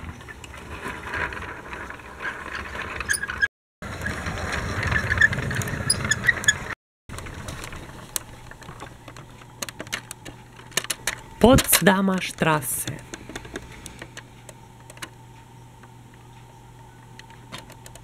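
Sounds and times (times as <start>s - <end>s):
plastic toy tram rattling: 0.0s - 12.4s.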